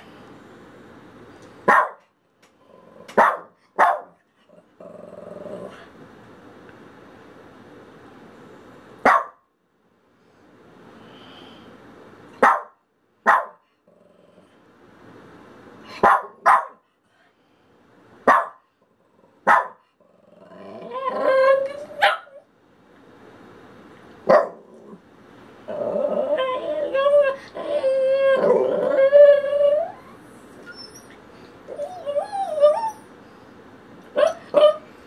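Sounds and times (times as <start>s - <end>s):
small dog barking: 1.6s - 2.0s, 3.1s - 4.2s, 9.0s - 9.4s, 12.4s - 13.6s, 16.0s - 16.8s, 18.2s - 18.7s, 19.4s - 19.8s, 22.0s - 22.4s, 24.3s - 24.7s
dog growl-whine: 4.4s - 5.9s, 20.0s - 22.0s, 25.6s - 33.1s
dog growling: 4.4s - 5.9s, 13.8s - 14.6s, 20.0s - 22.0s, 24.5s - 25.0s, 25.7s - 29.9s.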